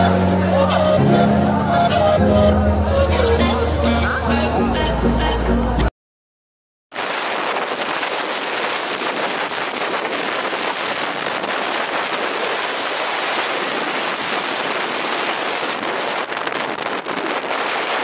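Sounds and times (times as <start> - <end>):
road noise: 0.0 - 5.9, 7.0 - 18.0
wind rushing on microphone: 6.9 - 18.0.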